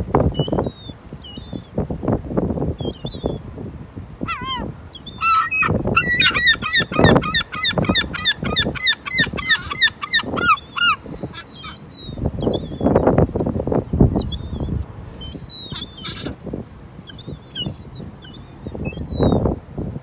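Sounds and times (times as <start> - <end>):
gull yelping calls: 4.2 - 12.0, 15.6 - 16.4.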